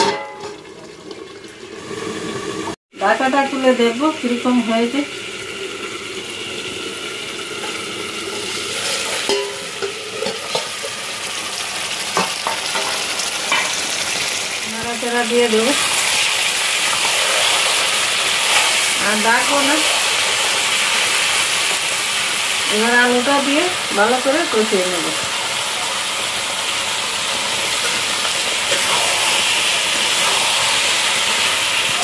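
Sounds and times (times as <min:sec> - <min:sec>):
meat curry sizzling: 0:00.6 - 0:32.0
spatula scraping pan: 0:15.8 - 0:20.7, 0:27.8 - 0:31.0.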